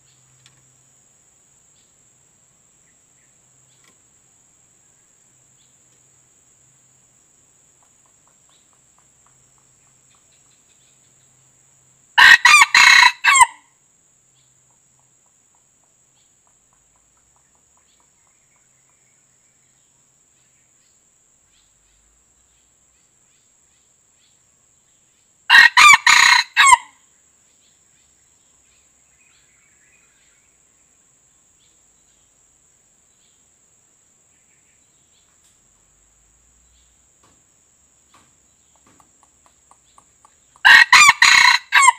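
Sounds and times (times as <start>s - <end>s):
rooster crowing: 12.2s - 13.7s, 25.5s - 27.0s, 40.6s - 41.9s.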